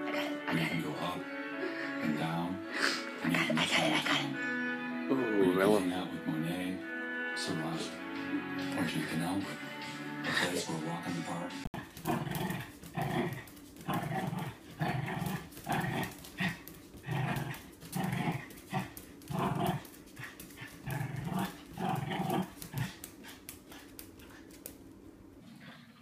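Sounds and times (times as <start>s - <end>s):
small dog growling: 11.8s - 24.7s.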